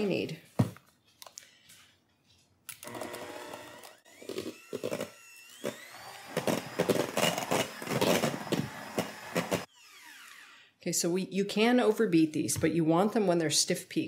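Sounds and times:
electric hand mixer whining: 2.8s - 10.7s.

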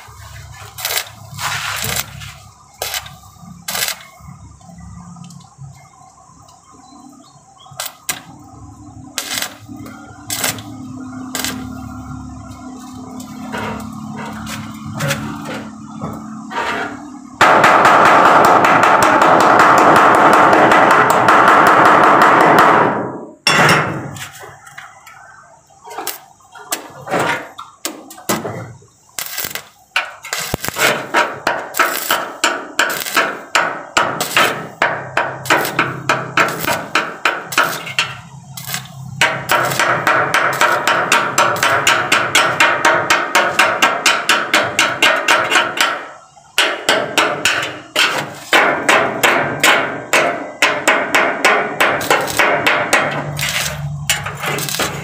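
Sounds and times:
loud steady noise: 0.0s - 55.0s
hammer striking steel: 16.6s - 24.2s, 29.3s - 55.0s.

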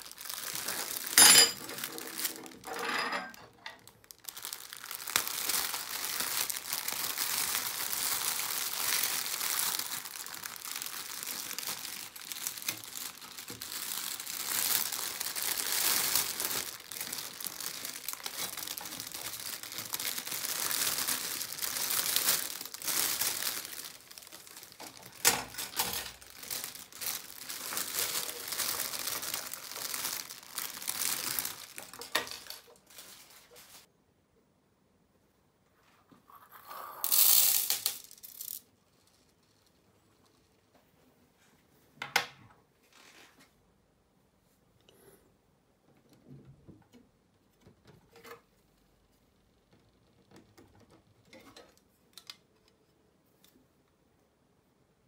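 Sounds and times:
plastic bag crinkling: 0.0s - 2.7s, 3.8s - 33.9s.

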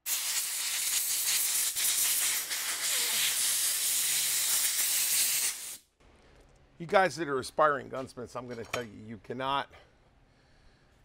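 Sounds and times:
compressed air hissing: 0.0s - 5.8s.

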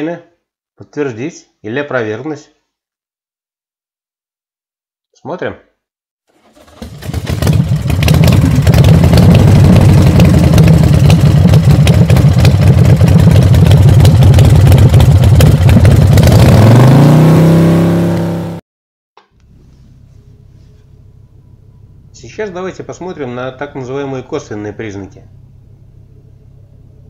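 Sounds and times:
engine running and revving: 6.5s - 18.6s.

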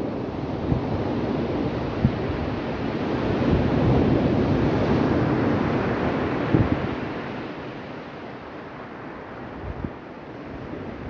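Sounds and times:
surf washing onto beach: 0.0s - 11.0s
wind buffeting microphone: 0.3s - 7.4s.

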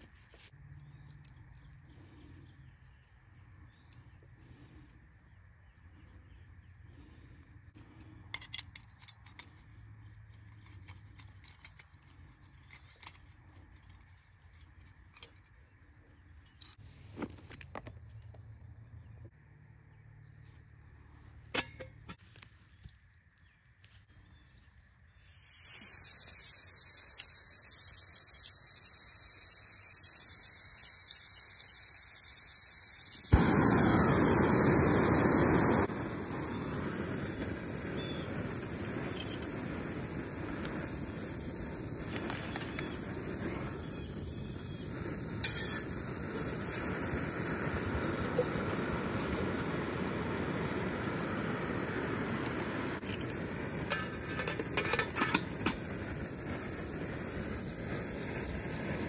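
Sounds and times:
gas hissing from burner: 25.2s - 59.0s
flame rushing: 25.3s - 59.0s
stove lighting pop: 53.0s - 56.0s.

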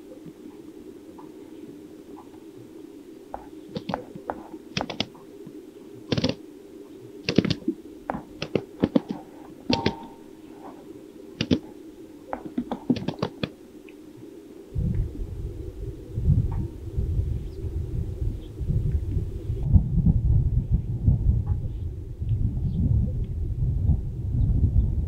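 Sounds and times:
grouse popping calls: 0.0s - 14.7s
wind rumbling on microphone: 0.0s - 25.0s.

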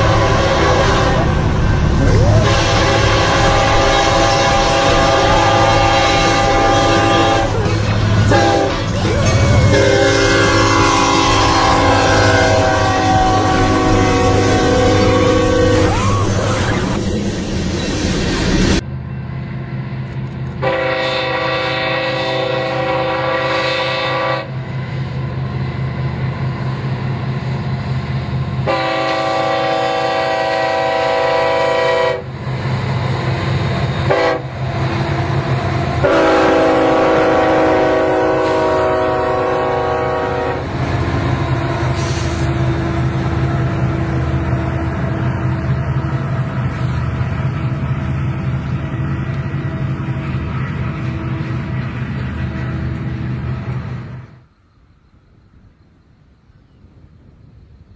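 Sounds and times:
train horn blasts: 0.0s - 16.2s, 20.6s - 24.7s, 28.6s - 32.4s, 34.0s - 34.6s, 36.0s - 43.6s
train rumbling: 0.0s - 57.9s.

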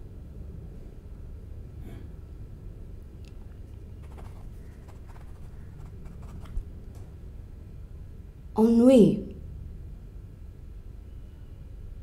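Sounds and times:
steady low hum: 0.0s - 12.0s
faint rustling: 3.7s - 7.1s.

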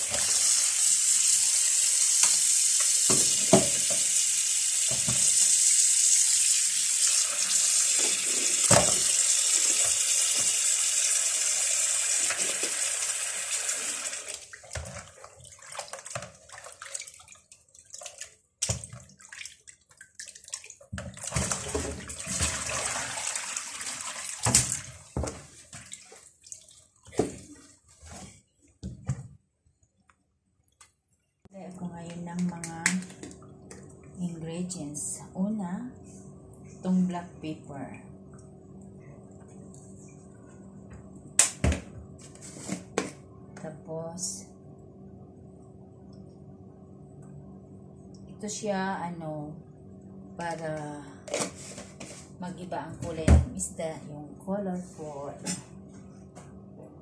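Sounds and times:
water sloshing and knocking: 14.6s - 27.8s.

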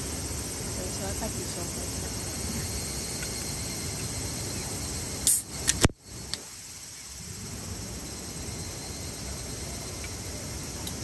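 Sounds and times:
outdoor background: 0.0s - 11.0s
beer can hissing pop: 5.2s - 6.0s.

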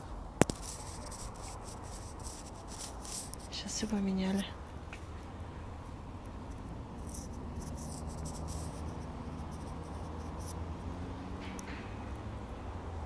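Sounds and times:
sharp click: 0.4s - 0.8s.

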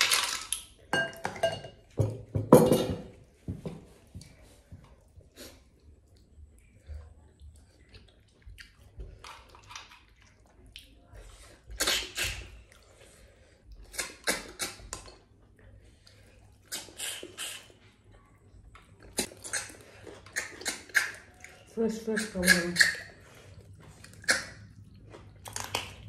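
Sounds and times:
wet slurping sucks: 16.6s - 17.8s.

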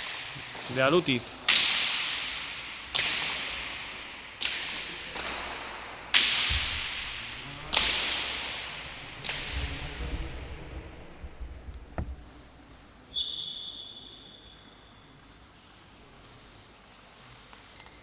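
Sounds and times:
ball cracking with echo: 0.0s - 12.8s.

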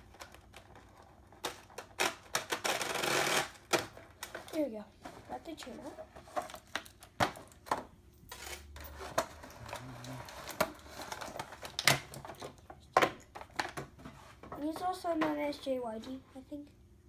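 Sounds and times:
plastic packaging crinkling: 8.4s - 12.7s.

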